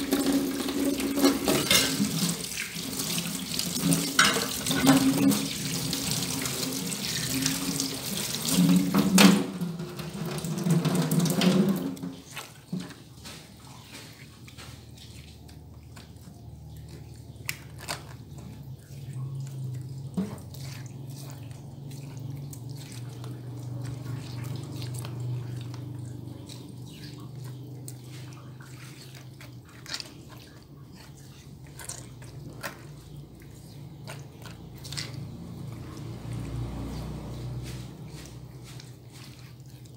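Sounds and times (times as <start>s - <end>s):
tap water running into a metal sink: 0.0s - 13.4s
hands squishing spice paste: 12.0s - 39.9s.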